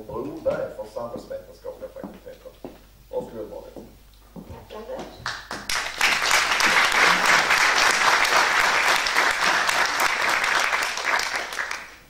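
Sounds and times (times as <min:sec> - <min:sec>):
audience applauding: 0:05.3 - 0:12.0.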